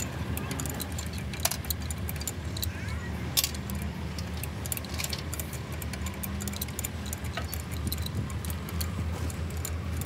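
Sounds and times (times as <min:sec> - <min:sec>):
metallic clicks of tools: 0:00.0 - 0:10.0
steady low hum: 0:00.0 - 0:10.0.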